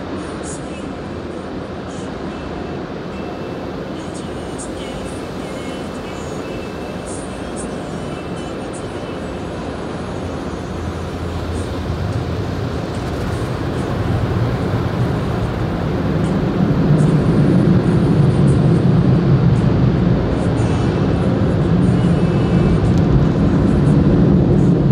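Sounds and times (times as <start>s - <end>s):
car wash equipment roar: 0.0s - 24.9s.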